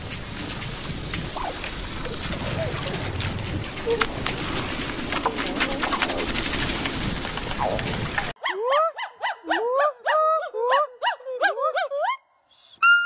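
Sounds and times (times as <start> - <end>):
garden hose spraying water: 0.0 - 8.4.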